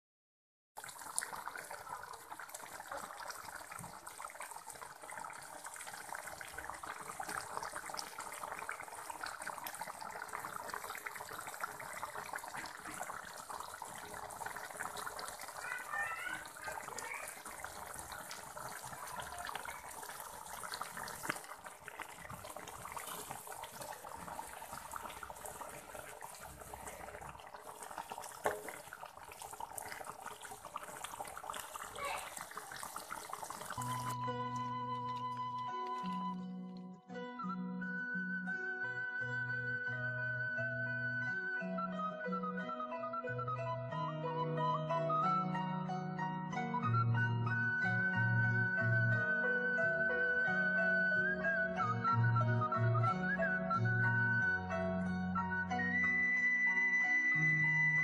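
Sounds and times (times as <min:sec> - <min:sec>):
sauce simmering and bubbling: 0:00.8 - 0:36.8.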